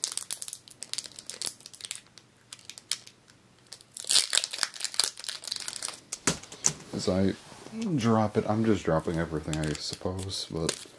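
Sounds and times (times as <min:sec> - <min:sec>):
foil wrapper crinkling: 0:00.0 - 0:06.5, 0:09.0 - 0:10.9.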